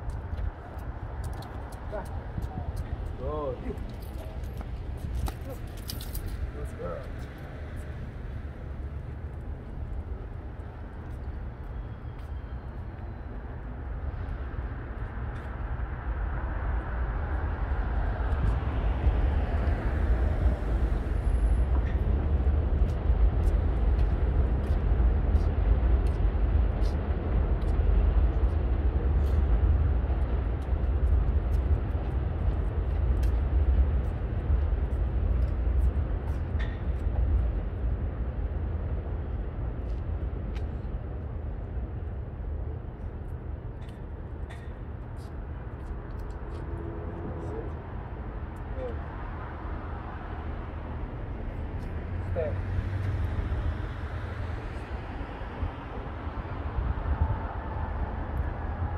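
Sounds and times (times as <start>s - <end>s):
street traffic rumble: 0.0s - 58.9s
vehicle passing by: 46.4s - 58.9s.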